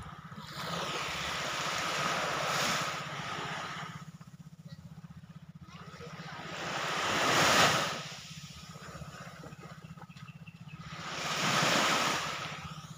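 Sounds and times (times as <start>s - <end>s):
small waves washing onto beach: 0.0s - 4.3s, 5.7s - 9.9s, 10.8s - 12.9s
low motor hum: 0.0s - 12.9s.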